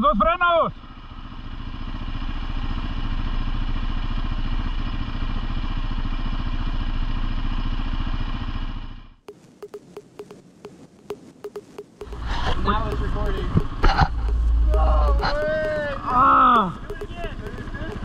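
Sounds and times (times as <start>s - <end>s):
atv engine idling: 0.8s - 9.0s, 12.1s - 18.0s
sharp quick clicks: 9.3s - 18.0s.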